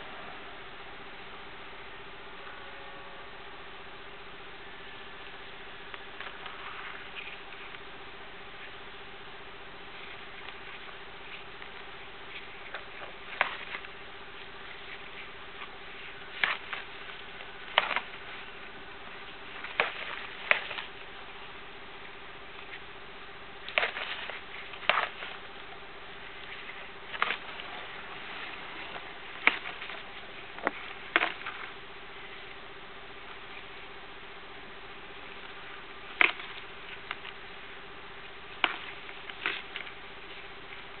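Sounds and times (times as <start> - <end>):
tortoise shells clacking: 9.9 - 34.0, 35.0 - 41.0.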